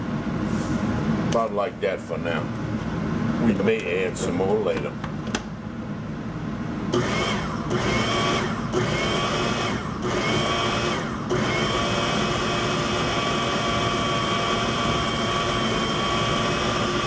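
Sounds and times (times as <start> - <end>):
food processor motor whining: 6.9 - 17.0.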